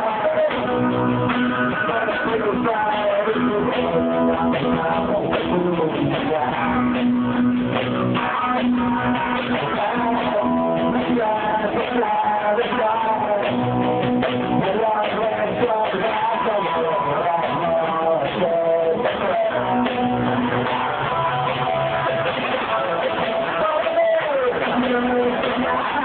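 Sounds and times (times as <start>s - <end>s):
drum kit: 0.0s - 26.0s
strummed electric guitars: 0.0s - 26.0s.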